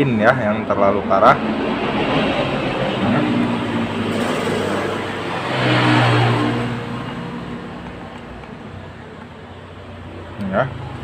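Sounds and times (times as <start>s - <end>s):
passing vehicle engine: 0.2s - 11.0s.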